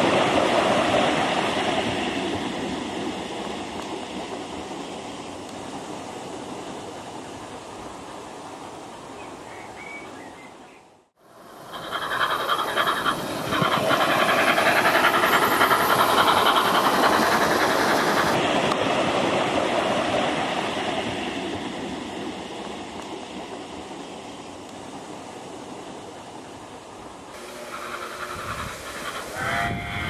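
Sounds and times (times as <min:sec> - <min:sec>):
simulated steam exhaust: 0:11.2 - 0:22.7, 0:27.3 - 0:30.0
model train wheels rolling: 0:11.3 - 0:18.8, 0:27.4 - 0:30.0.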